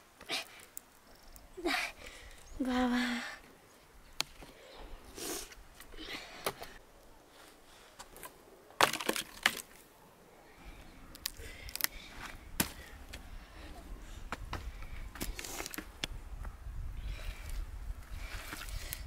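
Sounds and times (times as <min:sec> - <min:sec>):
dry branches snapping: 0:08.0 - 0:09.8, 0:11.1 - 0:13.2, 0:14.3 - 0:16.2
twigs rustling: 0:10.6 - 0:16.2.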